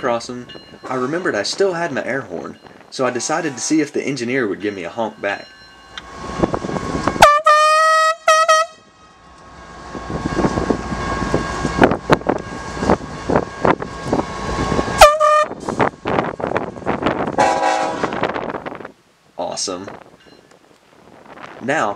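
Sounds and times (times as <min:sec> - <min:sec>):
diesel locomotives rumbling: 0:00.0 - 0:21.9
air horn blasts: 0:07.2 - 0:09.0, 0:15.0 - 0:15.6, 0:17.4 - 0:18.3.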